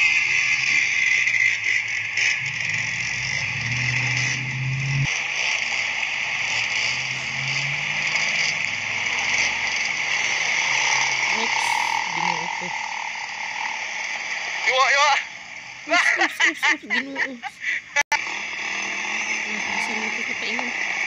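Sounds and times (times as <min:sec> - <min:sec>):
dirt bike engine running: 0:00.0 - 0:15.8, 0:18.2 - 0:21.0.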